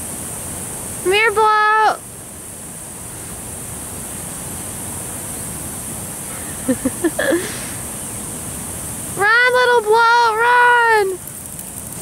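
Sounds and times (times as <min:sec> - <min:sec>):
outdoor background rush: 0:00.0 - 0:12.0
person vocal sounds: 0:06.7 - 0:07.8.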